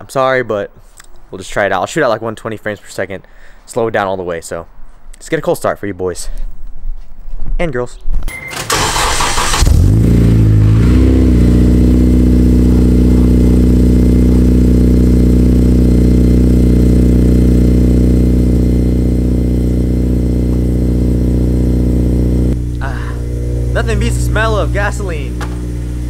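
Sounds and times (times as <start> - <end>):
car engine cold idling: 8.6 - 26.0.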